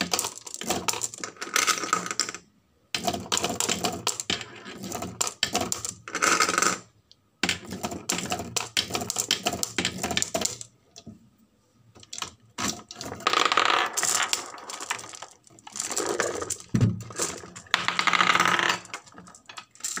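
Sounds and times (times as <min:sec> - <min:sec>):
glass marbles clattering: 0:13.3 - 0:20.0.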